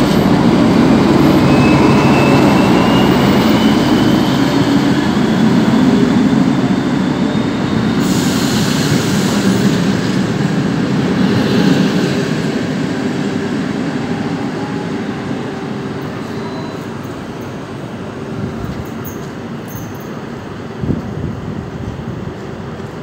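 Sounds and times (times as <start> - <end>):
diesel locomotive passing: 0.0 - 23.0
train coaches rumbling over rails: 0.0 - 23.0
brief high hiss: 8.0 - 9.7.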